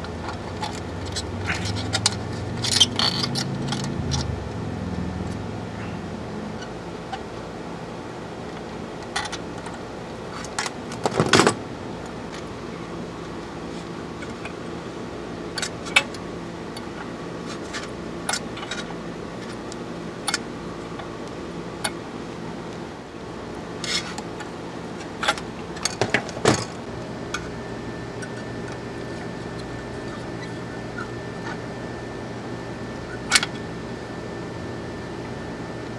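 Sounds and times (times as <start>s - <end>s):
steady low hum: 0.0s - 35.9s
tools clicking and clinking: 0.2s - 4.3s.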